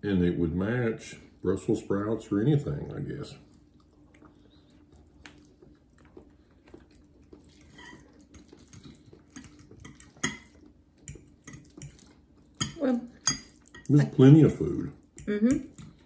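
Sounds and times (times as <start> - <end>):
faint low hum: 0.0 - 16.0
forks scraping on plates: 7.6 - 10.6.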